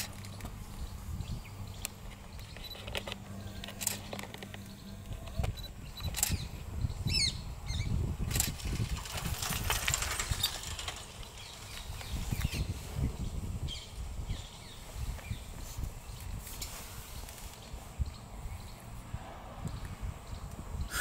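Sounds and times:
small bird chirping: 0.0 - 8.5.

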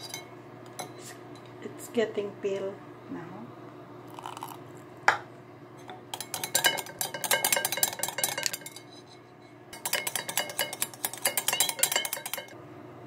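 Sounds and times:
whisk clinking against bowl: 0.0 - 1.0, 6.1 - 9.2, 9.8 - 12.6.

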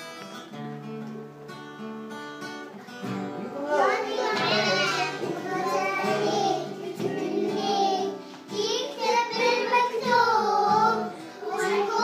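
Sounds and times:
children singing: 3.4 - 12.0.

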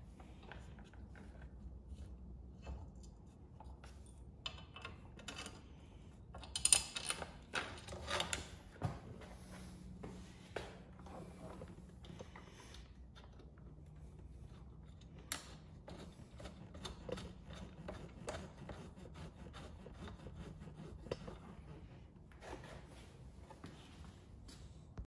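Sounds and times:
steady low hum: 7.2 - 25.0.

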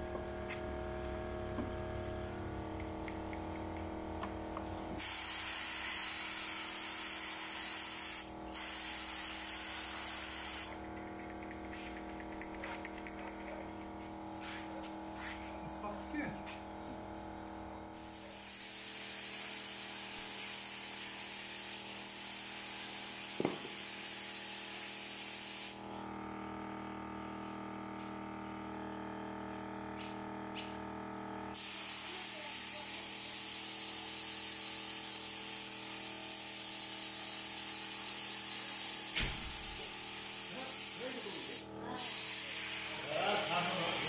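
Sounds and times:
steady hum: 0.0 - 23.9
paint spray gun hissing: 5.0 - 10.8, 17.9 - 25.8, 31.6 - 44.0.

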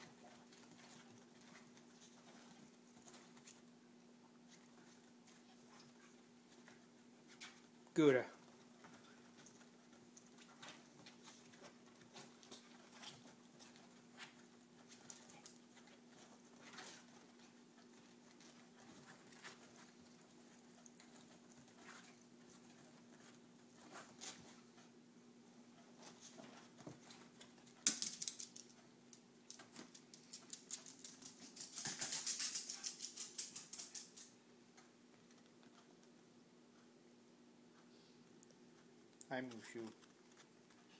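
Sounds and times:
animals rustling on cushion: 0.0 - 7.8, 8.4 - 27.8.

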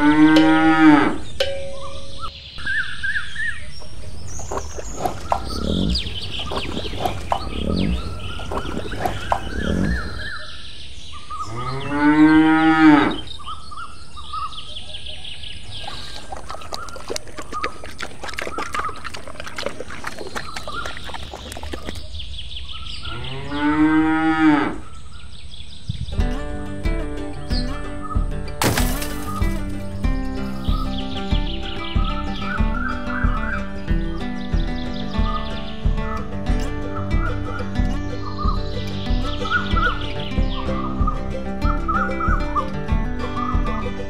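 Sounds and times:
cow mooing: 0.0 - 1.3, 11.5 - 13.3, 23.1 - 24.8.

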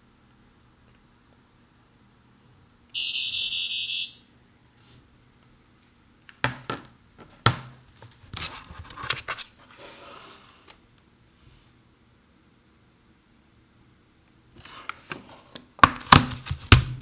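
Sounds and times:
high data tones from phone speaker: 3.0 - 4.3.

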